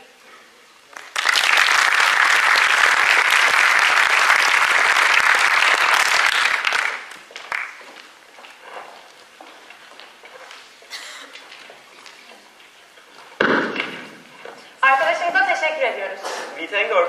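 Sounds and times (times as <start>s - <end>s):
audience applause: 0.9s - 8.1s.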